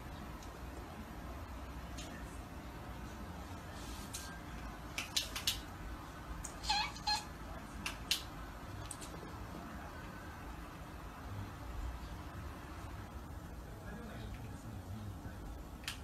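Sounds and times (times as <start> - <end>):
low room hum: 0.0 - 16.0
cat chirping: 6.4 - 7.4.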